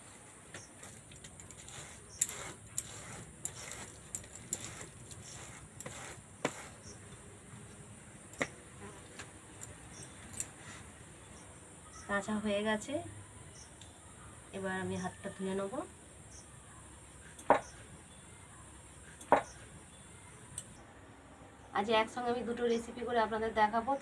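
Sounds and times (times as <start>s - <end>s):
fruit scraping against bamboo basket: 0.6s - 7.2s.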